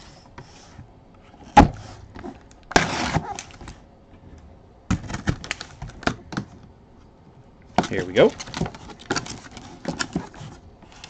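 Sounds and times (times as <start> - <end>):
cardboard tearing: 1.4 - 3.6, 7.9 - 11.0
taps and rustles: 7.7 - 11.0.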